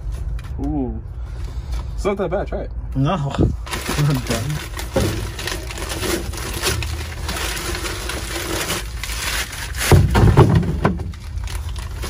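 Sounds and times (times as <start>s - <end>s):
plastic bag crinkling: 3.6s - 12.0s.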